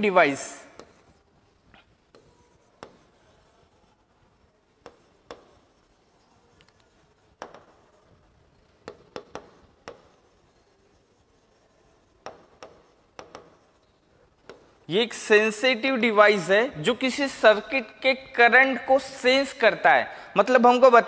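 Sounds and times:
writing on a board: 0:00.4 - 0:14.9.

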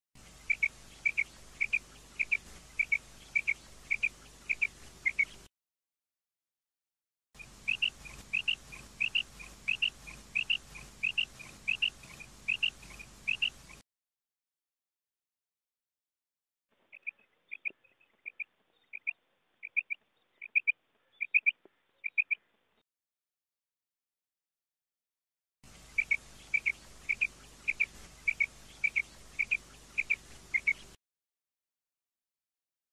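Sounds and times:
quail calling: 0:00.4 - 0:05.4, 0:07.4 - 0:13.8, 0:16.9 - 0:22.4, 0:25.9 - 0:30.9.

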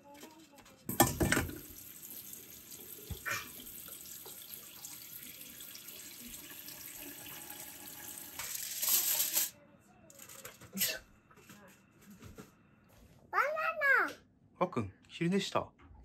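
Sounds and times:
tap water running into strainer: 0:00.9 - 0:09.5.

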